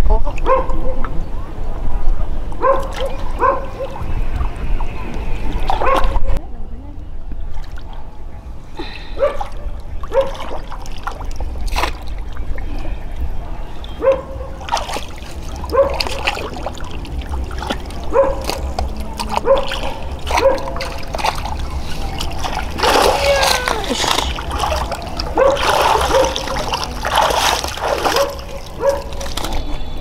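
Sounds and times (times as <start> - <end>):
water trickling and splashing: 2.6 - 6.4, 7.3 - 30.0.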